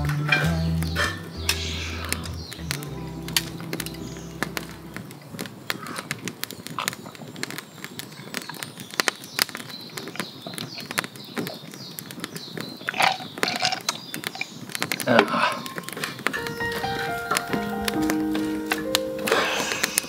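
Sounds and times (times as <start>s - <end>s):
campfire crackling and popping: 0.0s - 20.0s.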